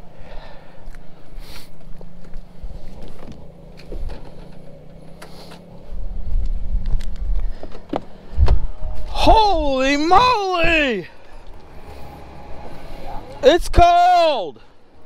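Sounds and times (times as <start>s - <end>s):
truck engine idling: 0.0s - 13.6s
loud low rumble: 8.2s - 13.5s.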